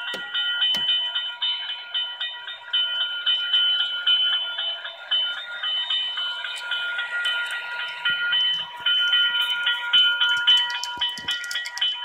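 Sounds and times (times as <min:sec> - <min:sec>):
electronic crossing bell ringing: 0:00.0 - 0:12.0.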